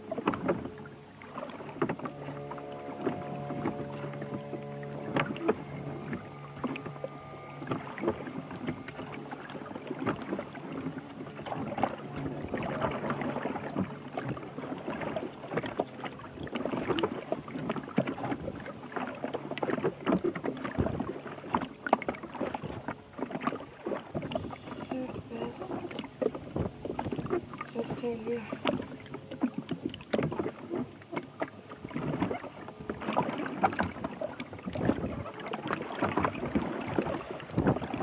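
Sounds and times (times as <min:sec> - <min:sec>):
held musical notes: 0:00.0 - 0:16.3
water splashing from rowing: 0:00.0 - 0:38.0.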